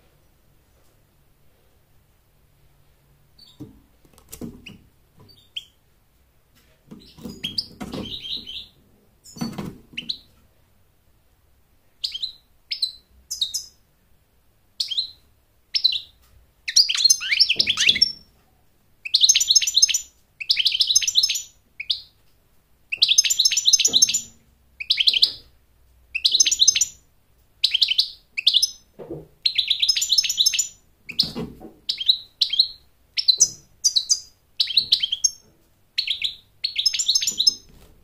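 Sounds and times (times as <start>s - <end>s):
goldfinch calling and singing: 16.7s - 18.2s, 22.9s - 25.4s, 26.2s - 27.0s, 27.6s - 28.8s, 29.4s - 35.4s, 36.0s - 37.7s.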